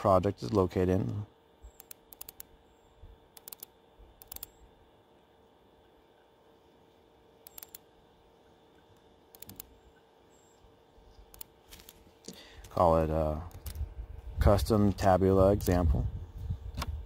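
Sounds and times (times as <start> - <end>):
faint steady hum: 0.0 - 17.0
computer mouse double-clicking: 1.8 - 2.5, 3.4 - 4.6, 7.4 - 7.8, 9.3 - 9.7.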